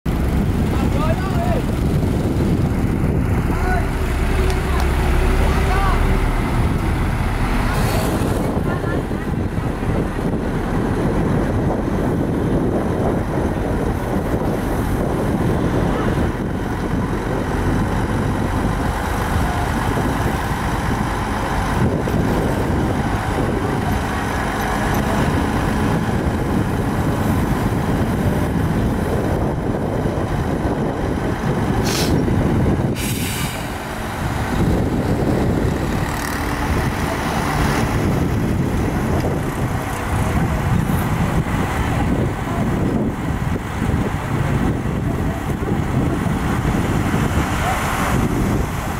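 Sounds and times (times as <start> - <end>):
diesel engine running: 0.0 - 48.9
air hisses: 31.8 - 32.2, 32.9 - 33.8.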